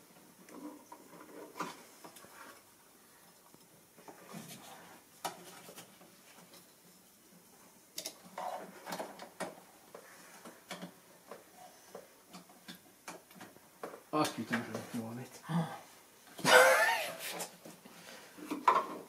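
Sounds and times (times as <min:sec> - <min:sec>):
clicks and knocks of hand work: 0:07.9 - 0:14.9.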